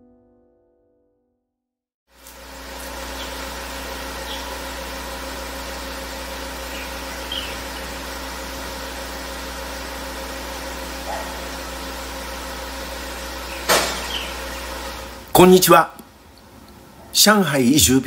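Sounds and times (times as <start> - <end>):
faint high chirps: 6.6 - 7.9.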